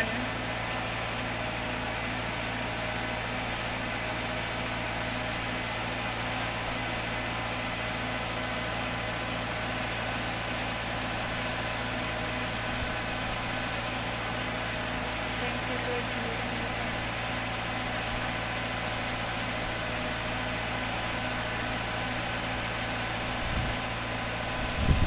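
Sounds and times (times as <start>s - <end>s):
engine idling: 0.0s - 25.0s.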